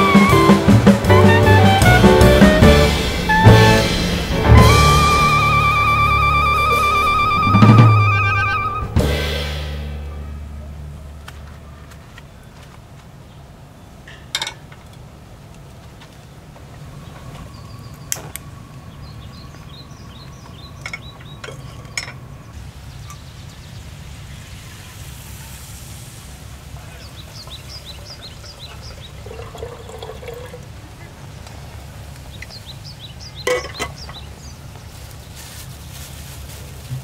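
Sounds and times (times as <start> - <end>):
water pouring into kettle: 28.2 - 30.8.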